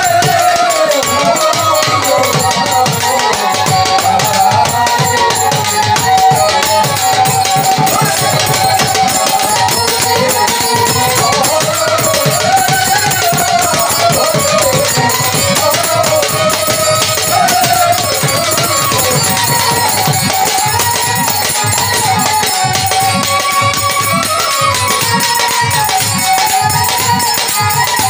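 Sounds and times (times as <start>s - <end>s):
bamboo flute melody: 0.0s - 28.0s
drum and jingle percussion: 0.0s - 28.0s.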